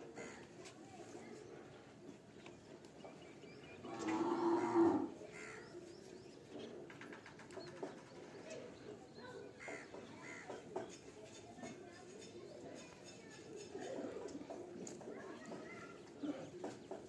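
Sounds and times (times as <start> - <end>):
cow mooing: 3.9 - 5.1.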